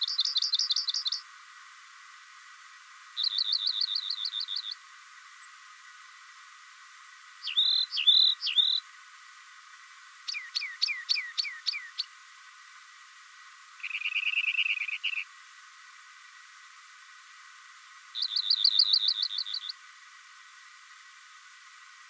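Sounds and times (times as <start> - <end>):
bird singing trilled phrases: 0.0 - 1.2, 3.2 - 4.8, 7.4 - 8.8, 10.3 - 12.1, 13.8 - 15.3, 18.2 - 19.8.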